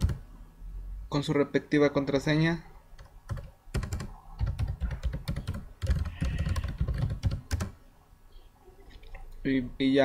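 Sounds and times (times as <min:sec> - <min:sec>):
keyboard typing clicks: 0:00.0 - 0:00.2, 0:03.0 - 0:07.8.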